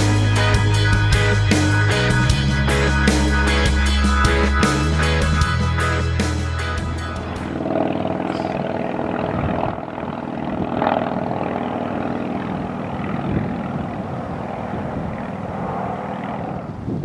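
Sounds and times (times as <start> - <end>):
motorcycle engine running: 0.0 - 13.9
wind rushing over microphone: 7.3 - 17.0.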